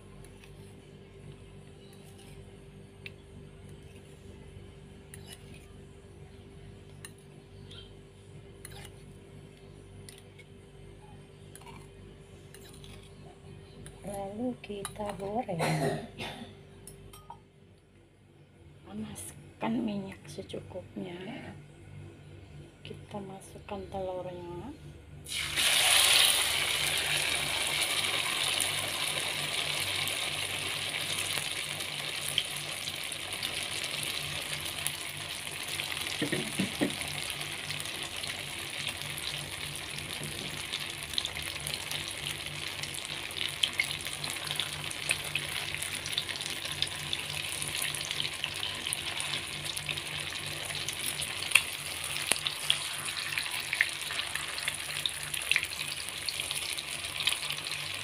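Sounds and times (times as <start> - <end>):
food frying in hot oil: 25.3 - 58.0.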